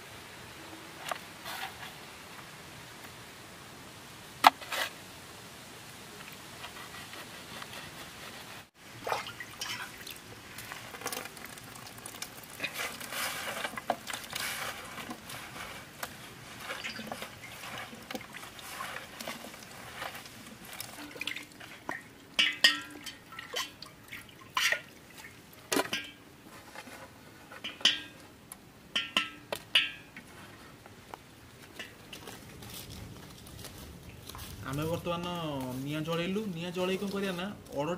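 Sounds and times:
wet handling sounds: 9.0 - 26.1, 31.6 - 37.9.

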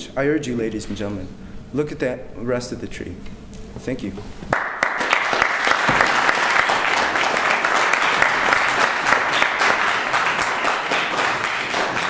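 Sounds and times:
audience applause: 4.5 - 12.0.

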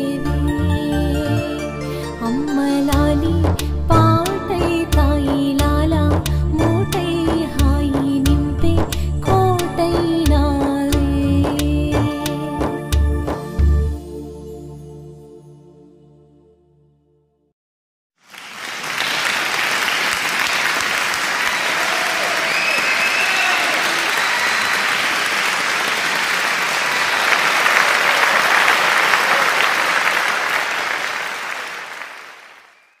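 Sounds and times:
crowd applause: 18.2 - 33.0.

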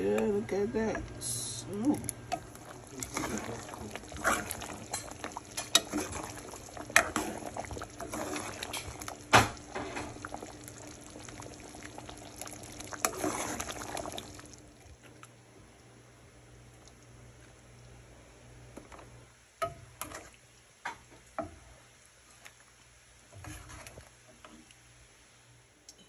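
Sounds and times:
thick liquid sloshing in pot: 2.0 - 15.3, 23.3 - 24.8.

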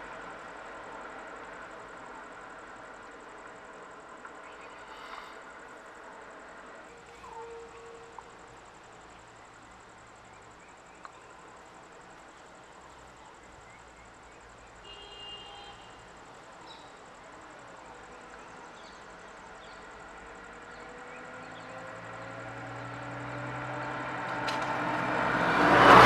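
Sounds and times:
faint vehicle engines idling: 0.0 - 26.0
outdoor noise: 0.0 - 26.0
van engine approaching: 16.2 - 26.0.

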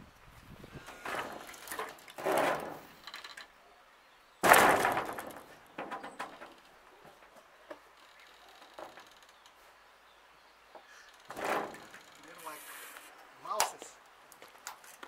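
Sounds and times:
greenhouse door rattling scrapes: 0.7 - 3.4, 4.4 - 6.6, 11.2 - 13.0
plastic door clattering bang: 4.4 - 6.5, 11.3 - 12.0.

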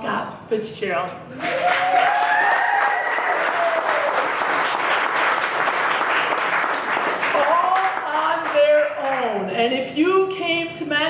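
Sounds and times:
audience applauding: 1.4 - 9.2.

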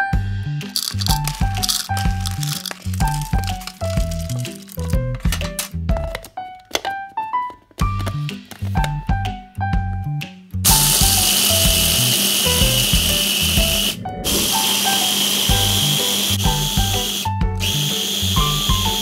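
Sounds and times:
food processor grinding peanuts: 0.7 - 5.0, 10.7 - 19.0.

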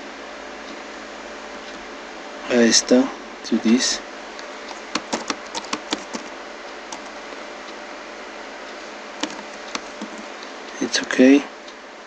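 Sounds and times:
keyboard keystrokes: 4.7 - 6.3, 6.9 - 7.2, 9.2 - 10.3.

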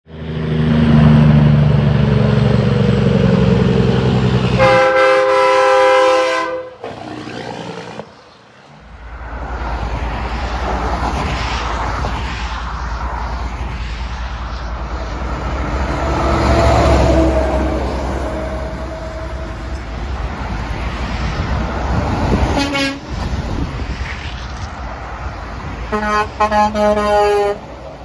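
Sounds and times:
deep engine rumble: 0.1 - 10.7
road traffic rumbling past: 0.1 - 28.0
air horn chord: 4.6 - 6.9, 22.6 - 23.0, 25.9 - 27.6.

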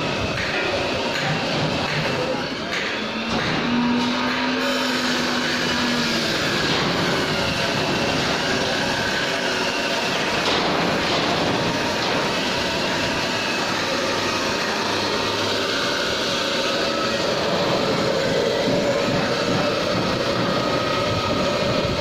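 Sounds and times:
angle grinder grinding steel: 2.6 - 22.0.

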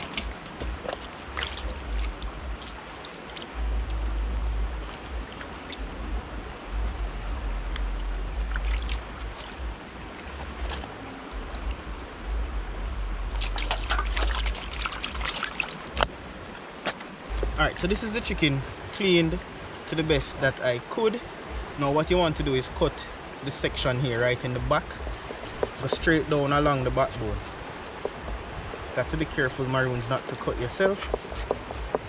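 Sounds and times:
water sloshing in steel bowl: 0.0 - 3.8, 13.4 - 16.0
flowing river rush: 0.0 - 32.0.

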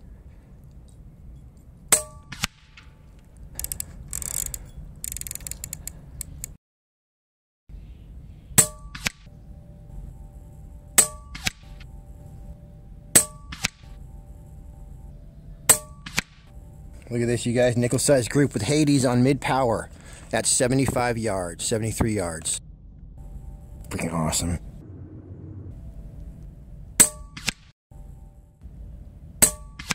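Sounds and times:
air rifle shots: 1.9 - 2.9, 13.2 - 13.9, 15.7 - 16.5, 27.0 - 27.7, 29.4 - 29.9.

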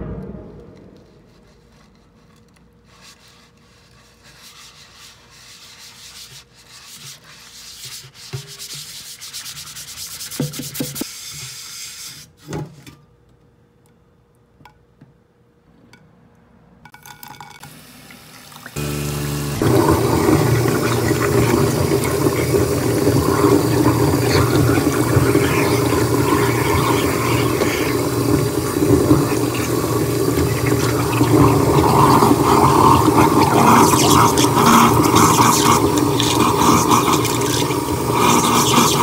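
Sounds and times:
tap water running into metal sink: 17.0 - 39.0.

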